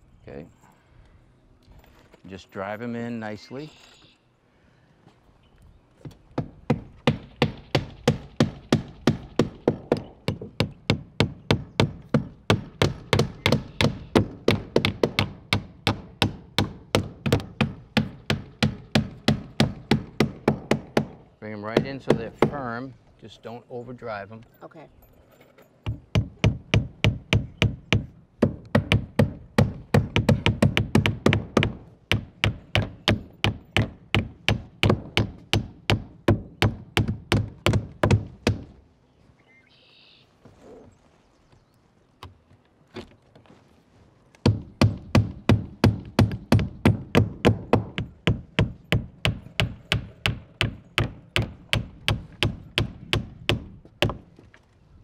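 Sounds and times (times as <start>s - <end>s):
hammers driving nails: 6.1s - 22.8s, 25.8s - 38.7s, 44.4s - 54.4s.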